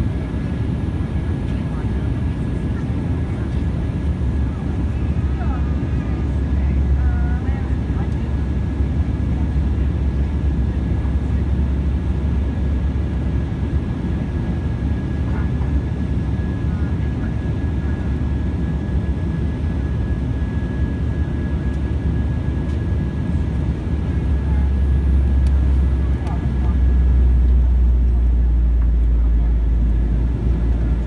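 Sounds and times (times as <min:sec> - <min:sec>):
jet cabin rumble: 0:00.0 - 0:31.0
thin steady whine: 0:15.1 - 0:31.0.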